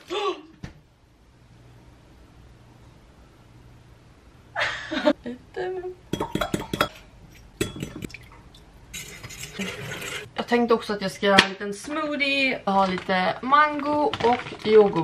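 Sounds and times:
dishes and cutlery clinking: 6.1 - 8.2.

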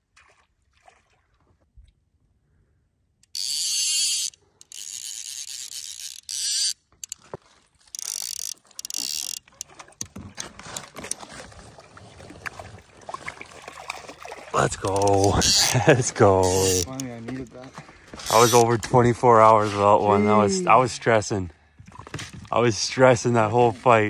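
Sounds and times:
fly reel ratchet chattering: 3.2 - 7.2, 7.9 - 9.7, 14.8 - 17.1, 18.2 - 18.7
fish splashing at surface: 9.4 - 15.8.

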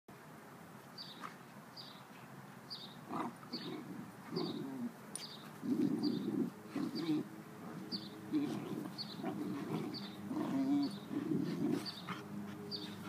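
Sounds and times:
bird chirping: 2.7 - 13.0
dogs play-growling: 3.0 - 13.0.

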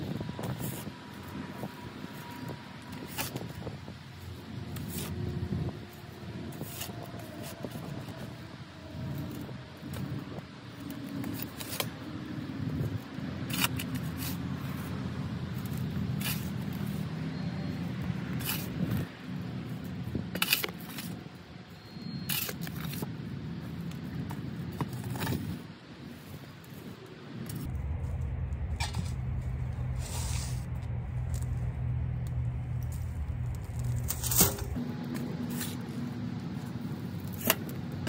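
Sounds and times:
shovel scraping soil: 0.4 - 3.7, 4.6 - 8.3, 13.4 - 14.9, 15.5 - 17.7, 18.3 - 19.0, 20.3 - 21.2, 21.9 - 23.1, 28.8 - 31.7, 32.8 - 37.7
low rumble: 27.5 - 37.2.

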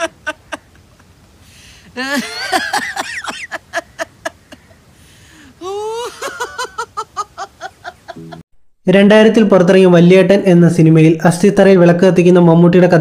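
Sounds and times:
man laughing heartily: 0.0 - 4.9, 5.5 - 8.4.

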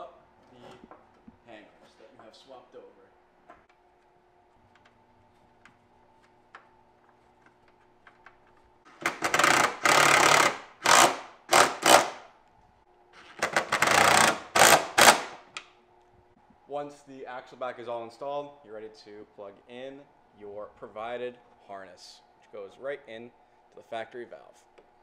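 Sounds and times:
impact driver hammering bolts: 8.9 - 12.2, 13.3 - 15.4
faint hum: 9.5 - 25.0.

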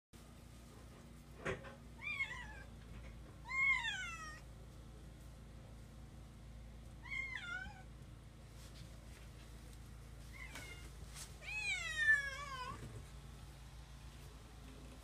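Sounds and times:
cat meowing: 3.4 - 4.4, 7.0 - 7.9, 10.3 - 12.8.

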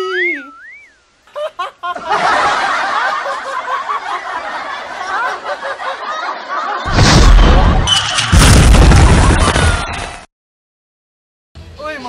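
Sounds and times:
laugh track: 1.3 - 7.0.

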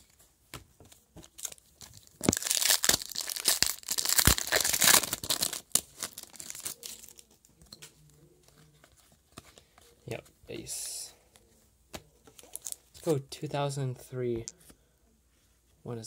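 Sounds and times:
foil wrapper tearing and crinkling: 1.4 - 7.2.

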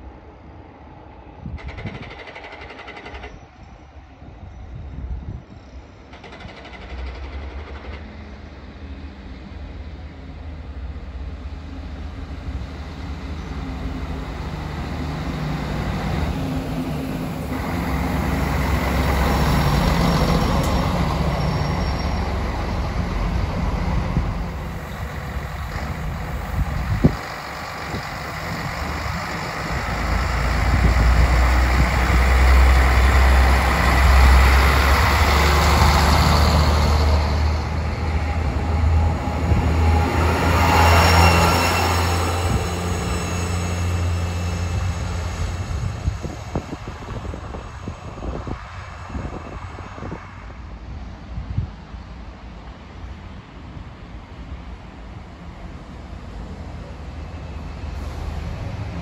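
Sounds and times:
railcar running and wheel noise: 0.0 - 59.0
low diesel engine hum: 6.8 - 48.4.

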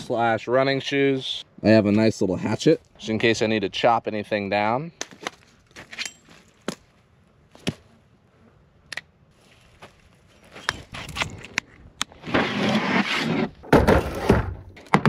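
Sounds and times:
plastic case scraping on wood: 12.1 - 14.6
loud thump: 13.6 - 15.0.

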